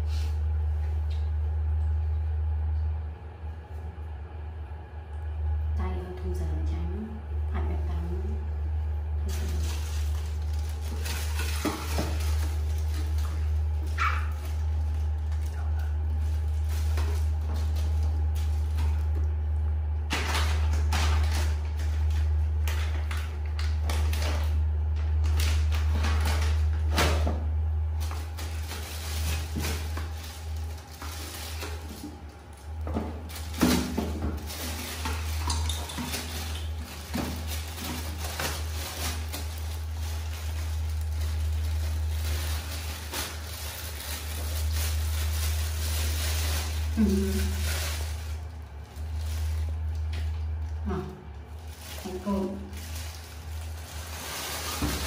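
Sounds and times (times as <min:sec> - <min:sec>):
steady low hum: 0:00.0 - 0:55.0
plastic bag crinkling: 0:09.0 - 0:55.0
plastic clattering and rustling: 0:09.3 - 0:19.3, 0:20.1 - 0:50.7, 0:51.6 - 0:55.0.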